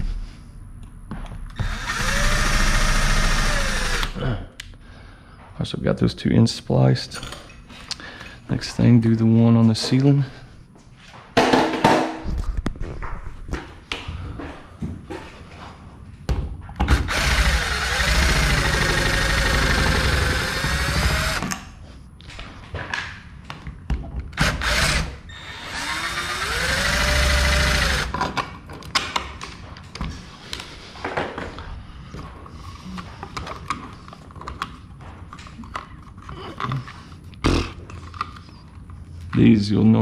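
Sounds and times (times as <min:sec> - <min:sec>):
cordless drill motor whirring: 0:01.6 - 0:04.2, 0:16.9 - 0:21.6, 0:24.4 - 0:28.1.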